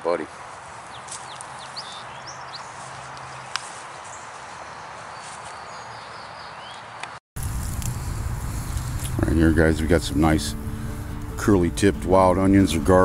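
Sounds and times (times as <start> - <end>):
steady outdoor hiss: 0.0 - 13.0
faint high bird chirps: 0.9 - 2.8.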